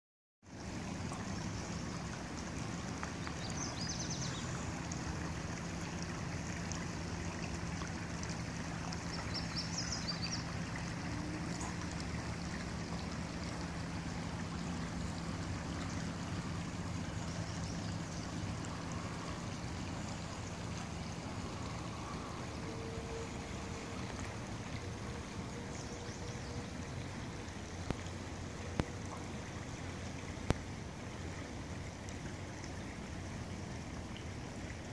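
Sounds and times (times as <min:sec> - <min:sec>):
water flowing over rocks: 0:00.4 - 0:34.9.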